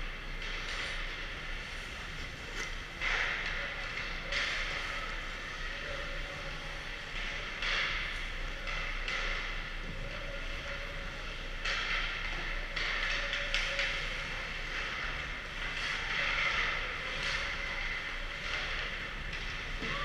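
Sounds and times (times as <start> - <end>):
low arena hum: 0.0 - 20.0
sticks or pucks clacking: 11.5 - 20.0.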